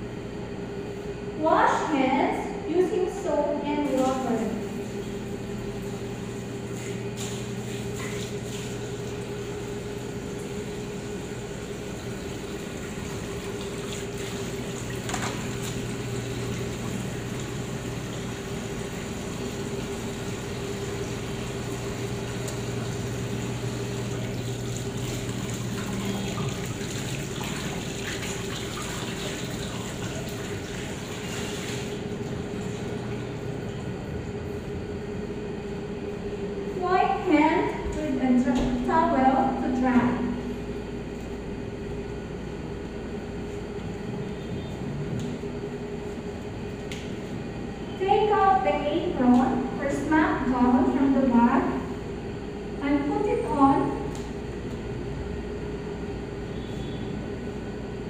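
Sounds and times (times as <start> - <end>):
tap water splashing into sink: 13.2 - 15.9, 24.2 - 32.0.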